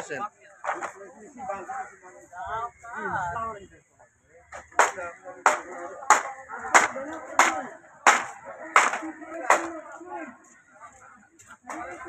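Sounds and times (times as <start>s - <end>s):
faint voices: 0.0s - 12.0s
sharp strikes: 4.6s - 9.8s.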